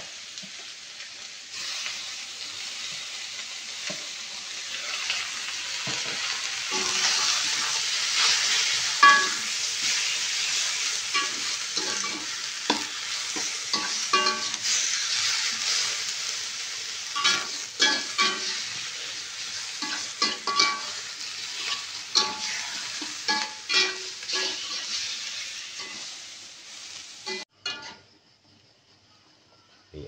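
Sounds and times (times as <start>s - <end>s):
meat sizzling in hot oil: 0.0s - 27.5s
spatula clanking on wok: 9.0s - 10.0s, 11.1s - 14.7s, 17.2s - 18.6s, 19.8s - 24.8s, 27.3s - 28.0s
metal spatula scraping pan: 19.8s - 26.1s.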